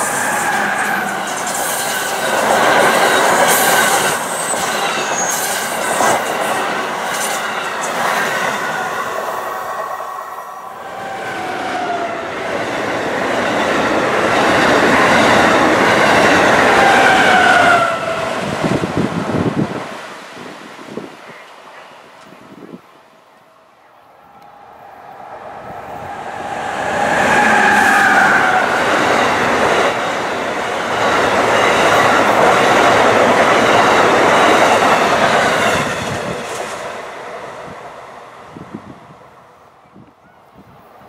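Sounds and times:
flange squeal: 0:00.0 - 0:08.0, 0:24.2 - 0:30.2
train wheels rumbling on rails: 0:00.0 - 0:22.8, 0:24.3 - 0:39.2.

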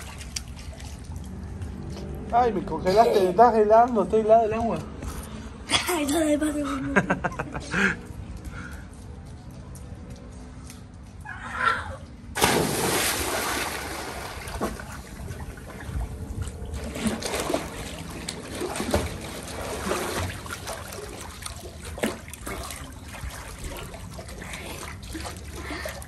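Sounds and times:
water splashing from swimming: 0:00.0 - 0:02.3, 0:12.4 - 0:26.0
splash into swimming pool: 0:12.4 - 0:15.9, 0:16.7 - 0:25.9.

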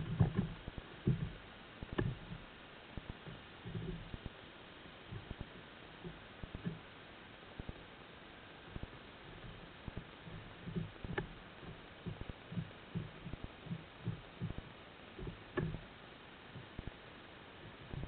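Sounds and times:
muffled underwater thumps: 0:00.0 - 0:02.4, 0:03.0 - 0:04.4, 0:05.1 - 0:06.8, 0:08.8 - 0:15.9.

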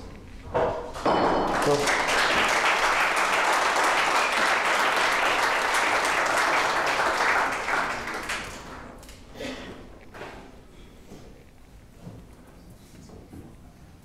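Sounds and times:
audience applauding: 0:01.5 - 0:09.2.

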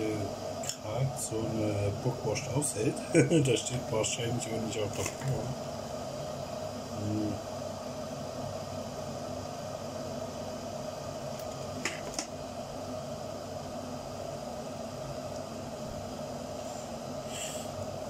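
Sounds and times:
kettle heating water hiss: 0:00.0 - 0:18.0.

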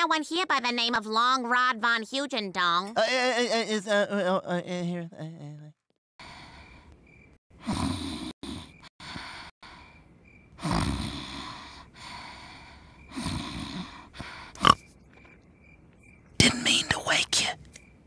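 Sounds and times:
girl snoring loudly: 0:07.6 - 0:09.9, 0:10.6 - 0:14.8.

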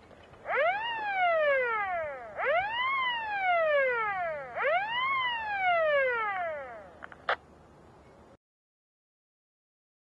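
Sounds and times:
whooping siren wail: 0:00.4 - 0:07.0.

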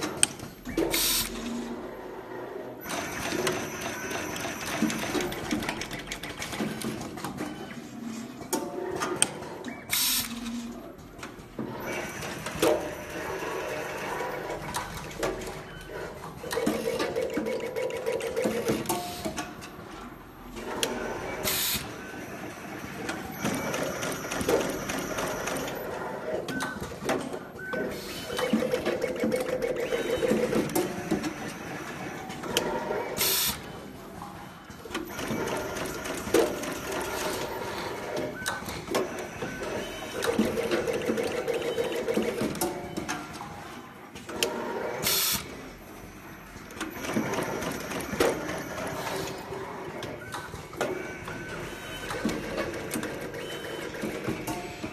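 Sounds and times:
machine clicking and clattering: 0:02.9 - 0:07.7, 0:11.2 - 0:19.8, 0:22.9 - 0:33.3, 0:34.2 - 0:44.6, 0:46.6 - 0:54.9.

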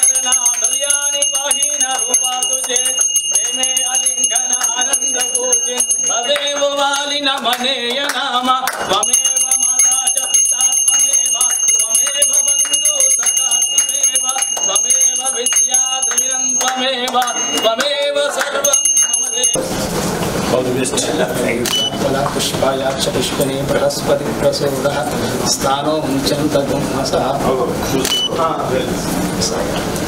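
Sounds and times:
brass hand bell ringing: 0:00.0 - 0:07.3, 0:08.7 - 0:19.6.

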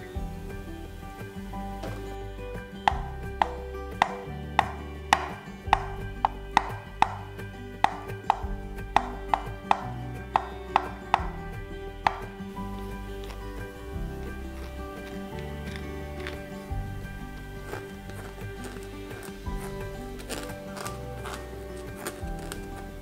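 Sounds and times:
knife chopping on wooden board: 0:02.9 - 0:11.3, 0:12.1 - 0:12.3.

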